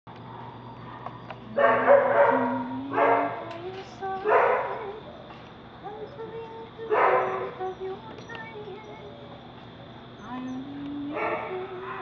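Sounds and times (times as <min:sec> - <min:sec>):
dog barking: 0:00.3 - 0:03.5, 0:04.2 - 0:05.0, 0:06.9 - 0:07.7, 0:11.1 - 0:12.0
woman singing softly: 0:01.5 - 0:05.1, 0:05.8 - 0:09.4, 0:10.2 - 0:12.0.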